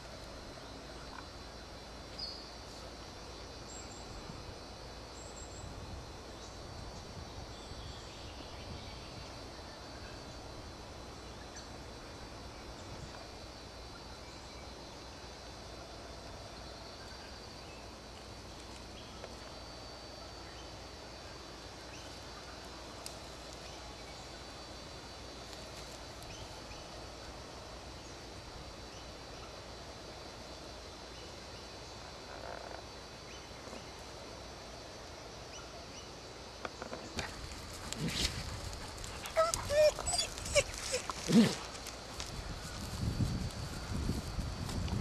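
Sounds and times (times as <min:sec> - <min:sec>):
distant animal calls: 0:37.2 - 0:41.9.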